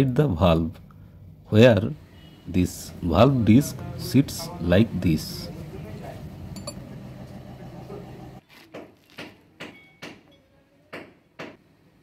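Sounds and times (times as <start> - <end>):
steady low hum: 0.7 - 8.4
metal parts knocking and clinking: 6.6 - 6.8.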